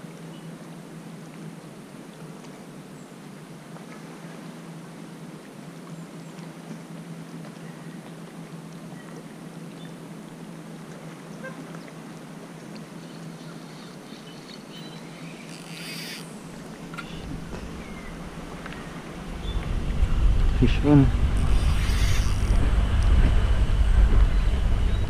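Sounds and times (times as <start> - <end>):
shallow water: 0.0 - 25.0
wind: 0.0 - 25.0
faint low hum: 16.3 - 25.0.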